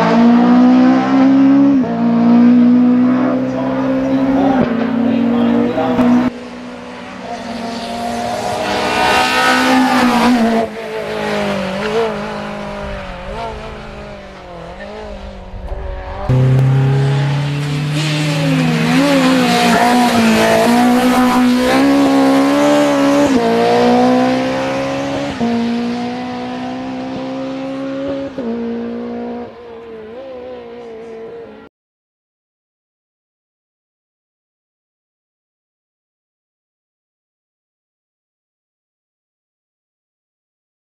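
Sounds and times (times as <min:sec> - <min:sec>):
race car engine revving high: 0:00.0 - 0:31.7.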